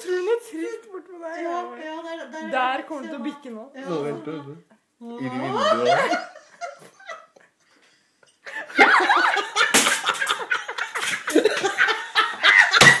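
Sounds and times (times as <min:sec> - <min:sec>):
person laughing loudly: 0:08.5 - 0:13.0.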